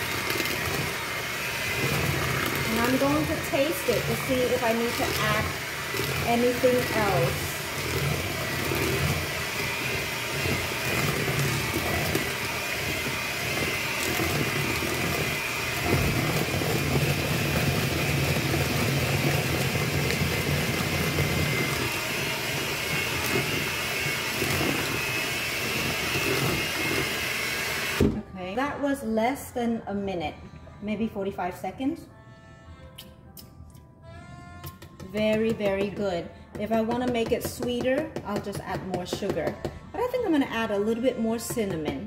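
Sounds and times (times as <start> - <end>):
electric hand mixer running: 0.0 - 28.2.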